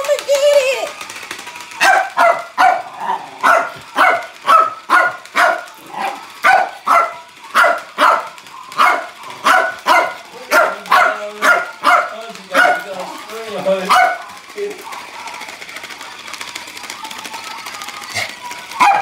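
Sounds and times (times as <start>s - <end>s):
small dog barking: 1.8s - 12.9s, 13.9s - 14.2s.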